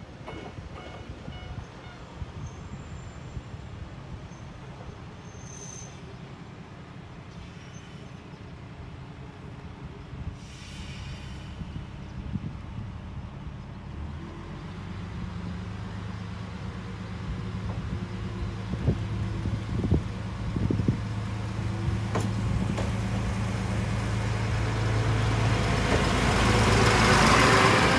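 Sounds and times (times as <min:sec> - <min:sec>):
diesel railcar engine drone: 0:00.0 - 0:27.9
wheels clacking on track: 0:15.9 - 0:27.9.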